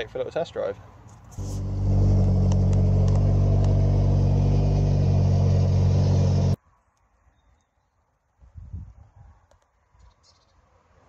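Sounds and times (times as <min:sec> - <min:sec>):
car engine idling: 0:01.4 - 0:06.6.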